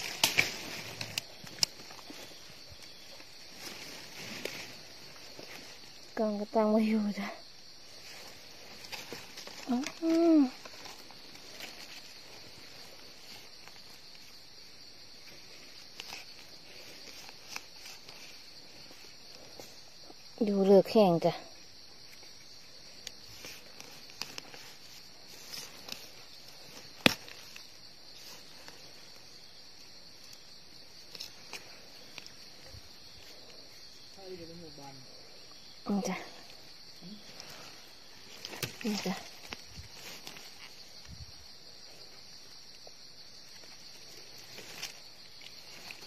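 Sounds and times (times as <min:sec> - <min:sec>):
hands rustling dry leaves: 0:00.0 - 0:07.1, 0:07.7 - 0:20.0, 0:22.2 - 0:34.1, 0:36.3 - 0:46.0
forest insects droning: 0:00.0 - 0:46.0.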